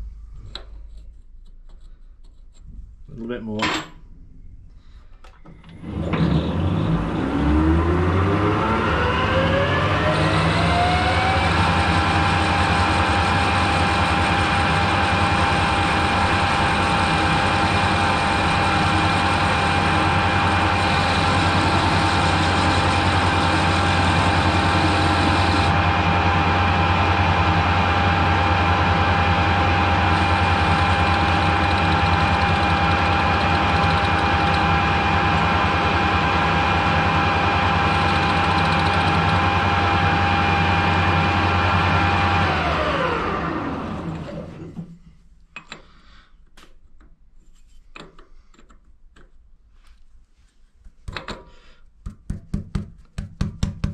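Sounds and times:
metal lathe whining: 5.6s - 44.7s.

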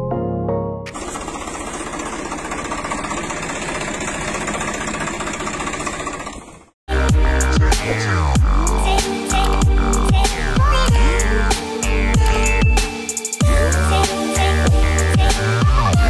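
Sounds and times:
toy tractor motor buzzing: 0.9s - 6.8s.

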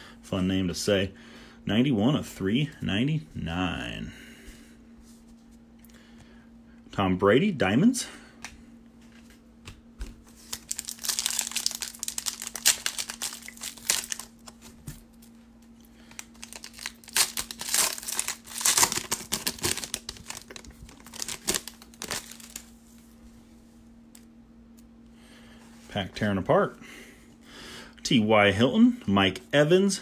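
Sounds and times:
foil wrapper crinkling and tearing: 10.4s - 15.3s, 16.0s - 22.8s.

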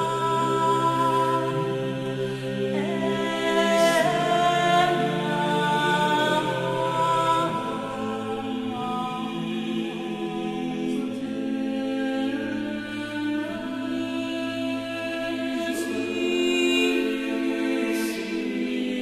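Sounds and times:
unaccompanied choir singing chords: 0.0s - 19.0s.

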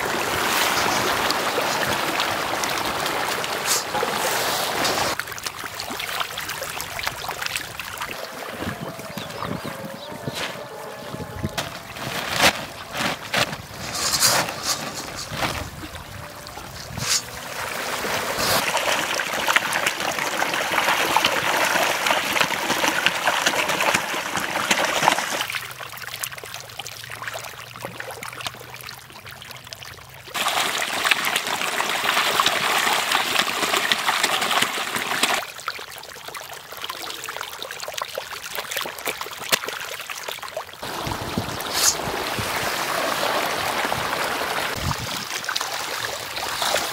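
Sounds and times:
fish splashing at water surface: 10.5s - 46.9s.

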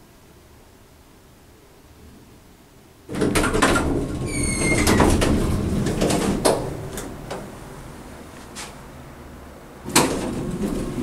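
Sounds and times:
elevator doors sliding open: 3.1s - 8.9s, 9.8s - 11.0s.

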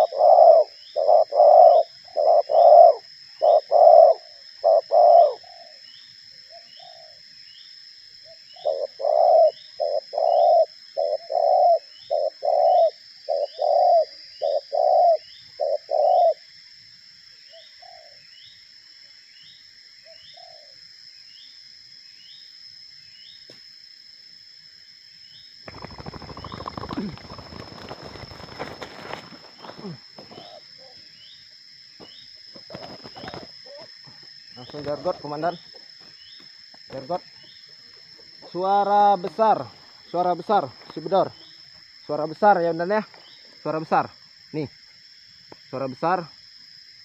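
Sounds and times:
doves cooing: 0.0s - 5.8s, 6.5s - 7.2s, 8.2s - 16.4s, 17.5s - 18.2s, 25.7s - 31.2s, 32.5s - 35.9s.

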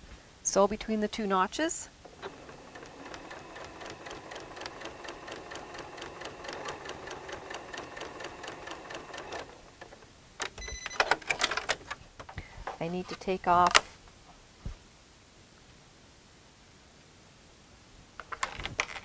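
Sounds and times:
sewing machine stitching: 2.0s - 11.8s.

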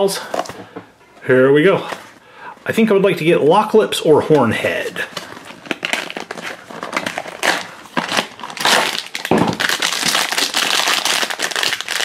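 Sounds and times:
foil bag crinkling and tearing: 5.0s - 12.0s.

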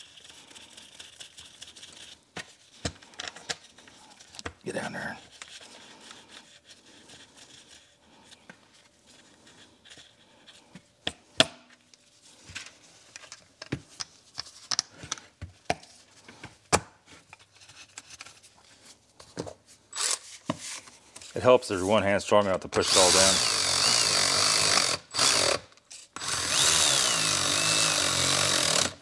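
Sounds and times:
gloved hands rubbing metal parts: 0.0s - 11.0s.

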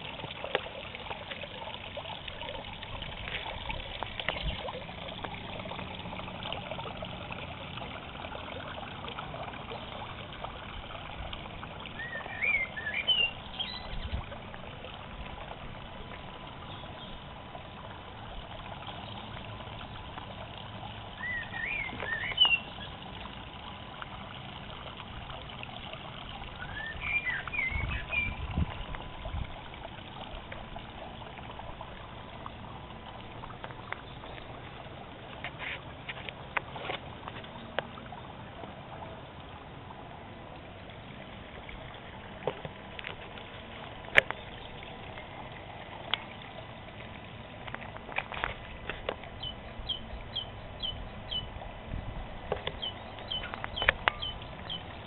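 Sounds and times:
waterfall trickling into pond: 0.0s - 55.0s
high bird chirps: 12.0s - 14.0s, 21.2s - 22.9s, 26.6s - 28.4s, 52.8s - 54.8s.

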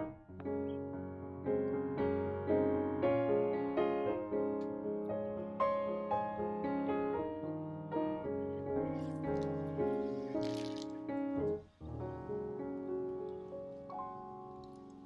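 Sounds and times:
gentle solo piano music: 0.0s - 15.0s
water spraying from a hose: 9.0s - 11.0s.

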